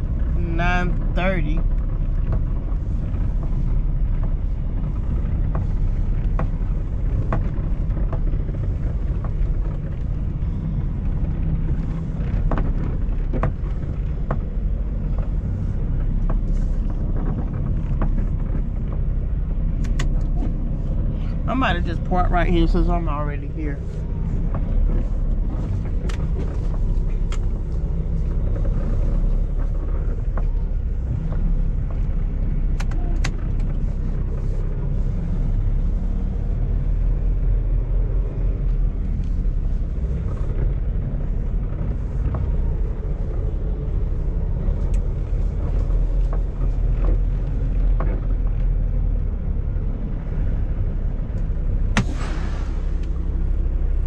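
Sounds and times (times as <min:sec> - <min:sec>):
truck diesel engine droning: 0:00.0 - 0:54.0.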